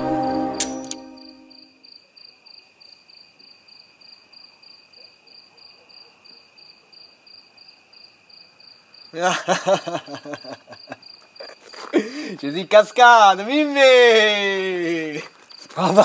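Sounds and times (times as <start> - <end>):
crickets chirping: 0.0 - 16.0
man laughing loudly: 9.2 - 11.0, 14.2 - 16.0.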